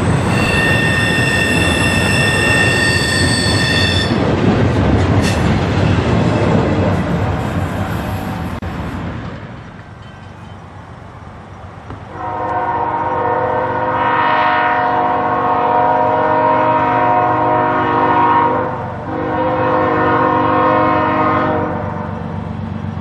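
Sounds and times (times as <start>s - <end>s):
locomotive air horn blasts: 0.3s - 4.2s, 12.1s - 22.1s.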